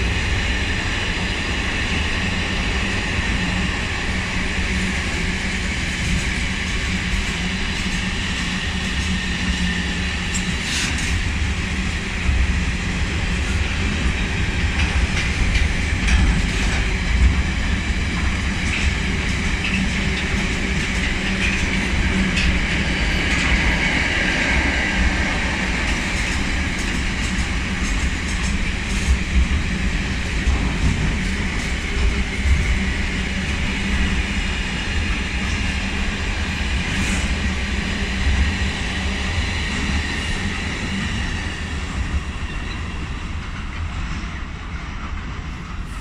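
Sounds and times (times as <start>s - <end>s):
freight train wheels rumbling: 0.0s - 46.0s
train clickety-clack: 0.0s - 46.0s.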